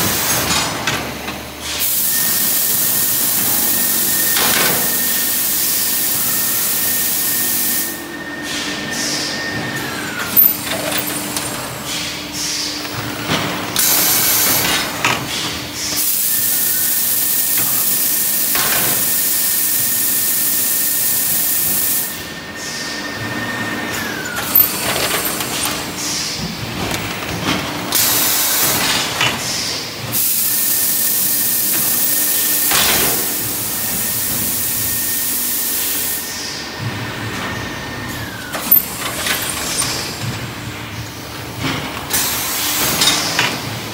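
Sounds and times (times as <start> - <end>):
loud hiss of air: 1.6 - 10.2, 13.8 - 23.2, 28.0 - 36.7.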